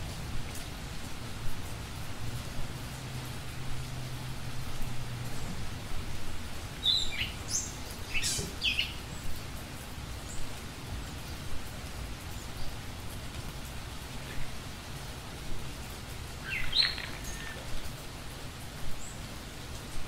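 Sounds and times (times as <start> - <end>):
steady background hiss: 0.0 - 20.0
bird chirps sweeping downward: 16.5 - 17.6.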